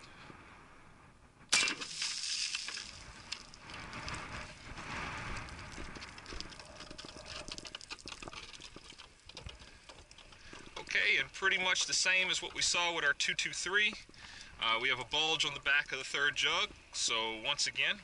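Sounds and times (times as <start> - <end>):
water jugs bursting and splashing: 1.5 - 4.1, 5.6 - 10.8
small clicks and rustles: 2.5 - 11.0.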